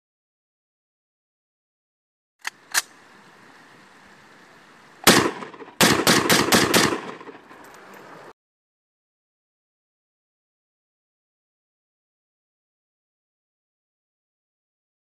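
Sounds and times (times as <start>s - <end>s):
sharp clicks: 2.4s - 2.9s
steady hiss: 2.6s - 5.8s
loud bangs: 5.0s - 7.5s.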